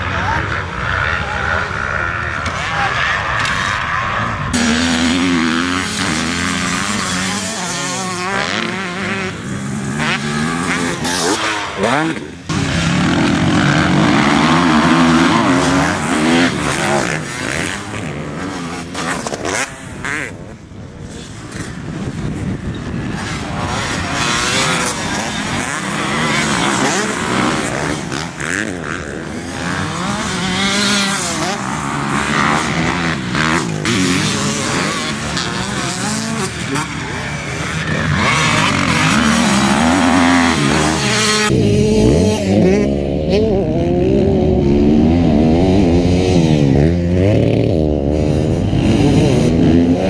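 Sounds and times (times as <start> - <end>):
motocross bikes revving: 0.0 - 50.0.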